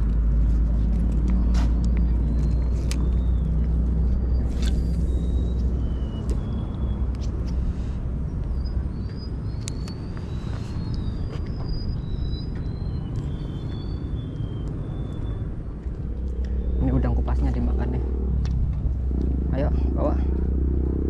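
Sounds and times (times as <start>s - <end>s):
high bird chirps: 2.0s - 7.4s, 8.4s - 15.8s.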